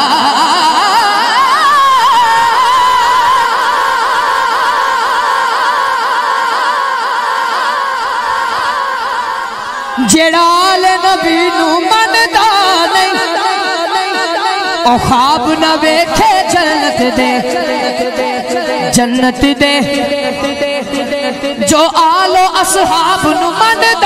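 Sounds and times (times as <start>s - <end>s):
man singing through microphone: 10.0s - 24.0s.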